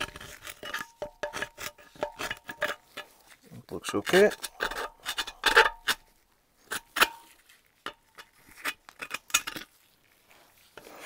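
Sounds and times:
scraper scraping metal: 0:00.0 - 0:03.1.

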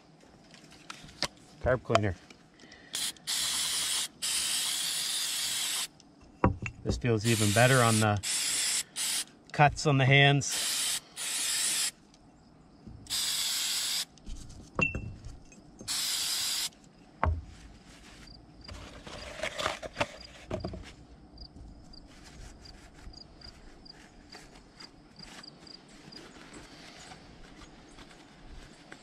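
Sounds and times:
aerosol spray hissing: 0:03.0 - 0:05.9, 0:07.2 - 0:09.3, 0:10.5 - 0:12.0, 0:13.1 - 0:14.1, 0:15.9 - 0:16.7.

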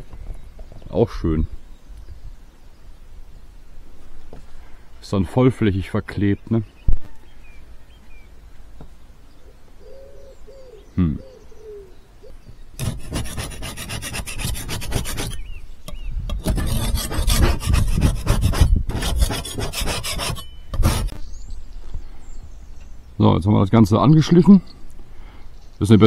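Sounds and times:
scraper blade rasping on metal: 0:12.8 - 0:15.4, 0:16.3 - 0:21.2.

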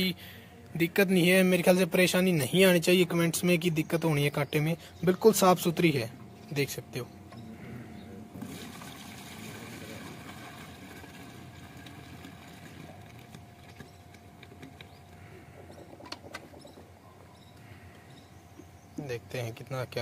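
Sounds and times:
milk pouring into bucket: 0:08.4 - 0:13.8.

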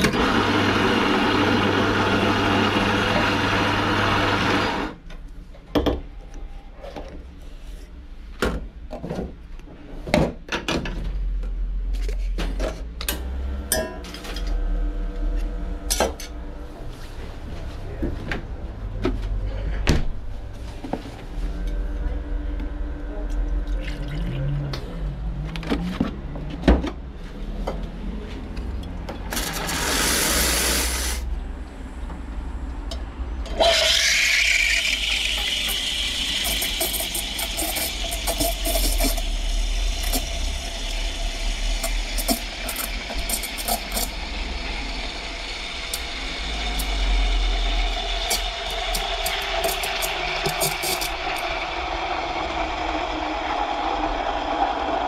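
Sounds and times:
steam purge from steam wand: 0:29.4 - 0:31.3, 0:33.6 - 0:55.0
steam wand hissing in milk: 0:29.4 - 0:31.3, 0:33.6 - 0:44.3, 0:45.1 - 0:51.5.

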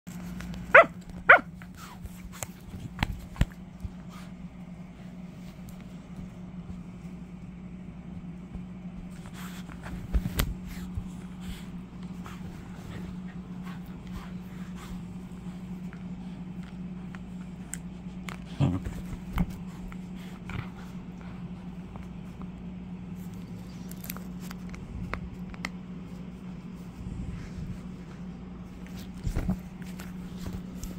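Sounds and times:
dog tussling with plush toys: 0:00.1 - 0:24.7
air conditioner humming: 0:00.1 - 0:30.9.

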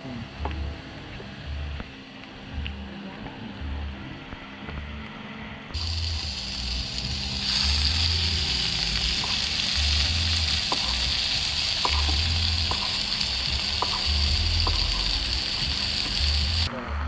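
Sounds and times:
food sizzling on grill pan: 0:05.8 - 0:16.7.

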